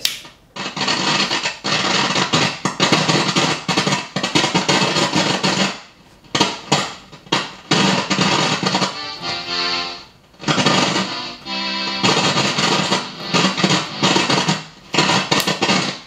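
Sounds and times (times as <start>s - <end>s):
crackling static with pops: 0.0s - 16.0s
synthesizer string tone: 11.0s - 14.5s.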